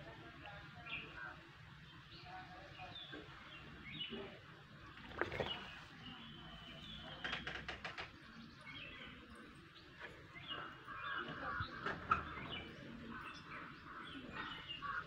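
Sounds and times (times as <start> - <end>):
small birds chirping: 0.4 - 15.0.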